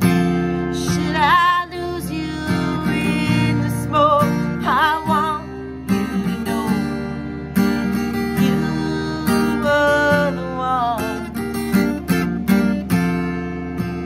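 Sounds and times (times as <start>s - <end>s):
strummed acoustic guitar: 0.0s - 14.0s
woman singing: 0.5s - 11.7s.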